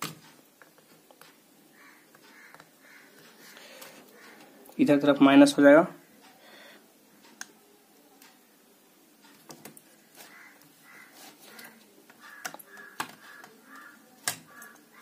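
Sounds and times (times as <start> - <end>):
crow cawing faintly: 1.7 - 4.8, 10.0 - 15.0.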